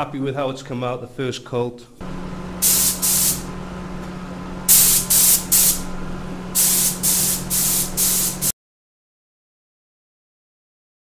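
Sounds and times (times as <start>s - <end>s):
steady low hum: 2.0s - 8.5s
spray gun hissing: 2.6s - 3.5s, 4.7s - 5.9s, 6.5s - 8.5s.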